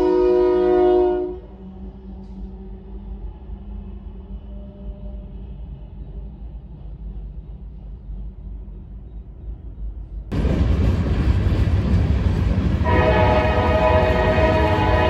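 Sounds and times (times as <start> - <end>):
locomotive air horn: 0.0 - 1.6, 12.8 - 15.0
train rumbling: 0.0 - 15.0.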